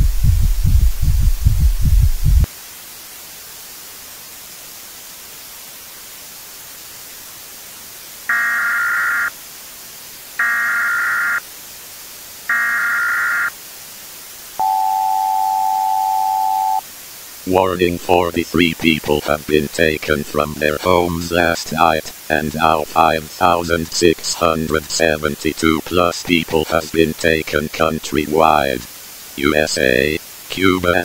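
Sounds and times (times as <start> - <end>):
low throbbing hum: 0.0 - 2.5
static hiss: 0.0 - 31.0
emergency alert data tone bursts: 8.3 - 9.4, 10.4 - 11.4, 12.5 - 13.6, 14.6 - 16.8
steady alert attention tone: 14.6 - 16.8.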